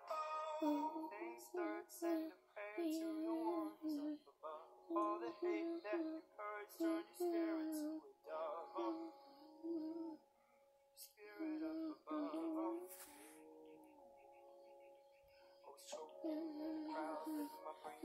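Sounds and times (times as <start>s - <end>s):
girl singing: 0.0s - 4.2s, 4.8s - 10.2s, 11.0s - 13.4s, 15.9s - 18.0s
pop song from tablet speaker: 0.0s - 10.2s, 11.0s - 18.0s.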